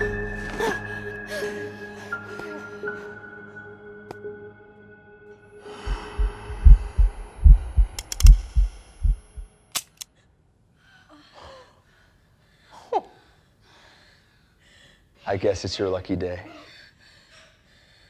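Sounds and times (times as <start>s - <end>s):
pounding heartbeat effect: 5.8s - 9.5s
pistol dry-fire click: 8.0s - 8.6s, 9.7s - 10.1s
faint gasping breaths: 10.9s - 15.3s, 16.4s - 18.0s.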